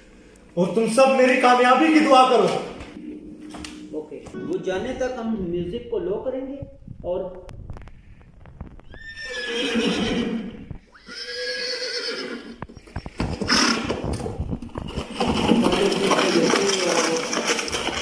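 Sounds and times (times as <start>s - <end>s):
horse whinnying: 8.9s - 14.3s
hoofbeats clattering: 12.5s - 18.0s.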